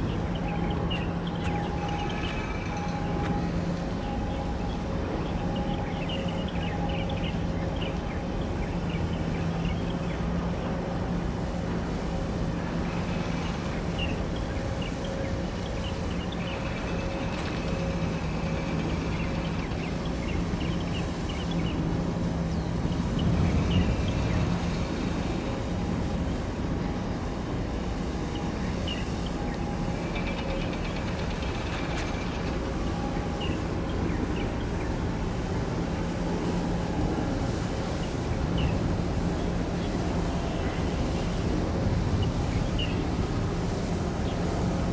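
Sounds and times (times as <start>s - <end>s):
ship machinery drone: 0.0s - 44.9s.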